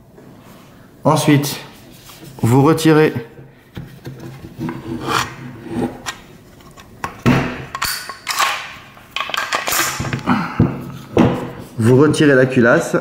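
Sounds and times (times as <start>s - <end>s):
gun bolt metal scraping: 5.1s - 10.0s.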